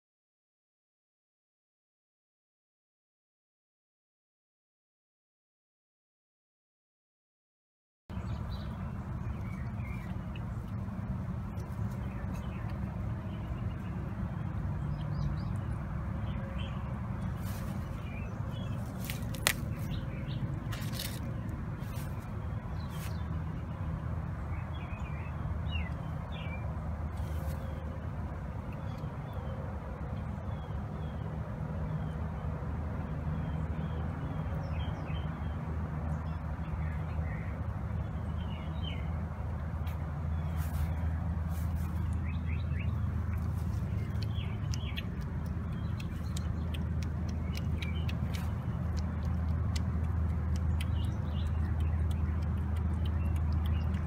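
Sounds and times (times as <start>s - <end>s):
steady low hum: 8.1s - 33.7s
kittens eating wet food: 8.1s - 54.0s
small birds chirping: 8.1s - 54.0s.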